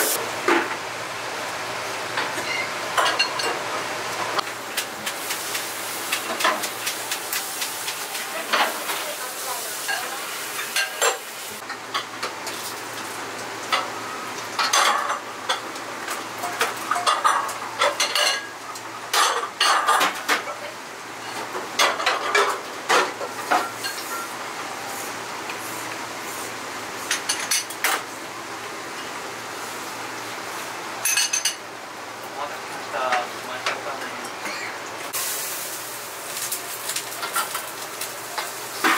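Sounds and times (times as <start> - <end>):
food sizzling: 0.0 - 0.3, 1.4 - 19.6, 35.0 - 38.9
utensils clinking against bowls: 9.8 - 12.1, 31.0 - 31.6.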